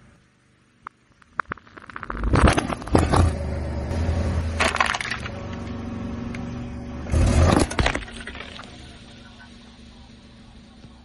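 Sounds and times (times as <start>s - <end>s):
car low rumble: 0.0s - 11.0s
objects crunching under a tyre: 1.2s - 3.4s, 4.5s - 5.7s, 7.1s - 8.8s.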